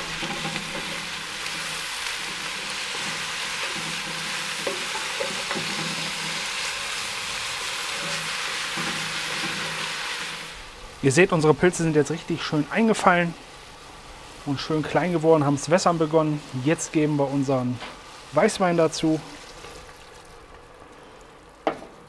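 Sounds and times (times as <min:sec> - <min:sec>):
wooden spatula stirring: 0:00.0 - 0:09.9
food sizzling in a pot: 0:00.0 - 0:20.8.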